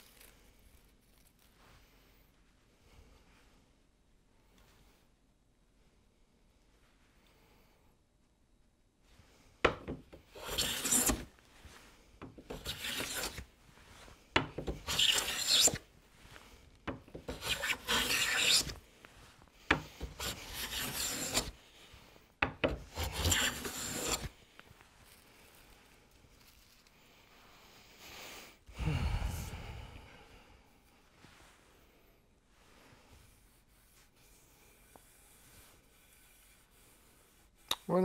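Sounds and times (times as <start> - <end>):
hand plane scraping hiss: 10.3 - 16.6, 17.2 - 22.2, 22.9 - 24.4.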